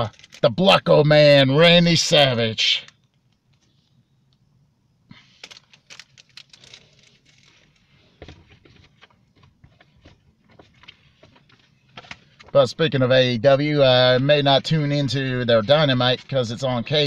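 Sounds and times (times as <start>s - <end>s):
plastic packaging rustling: 5.4s - 9.1s.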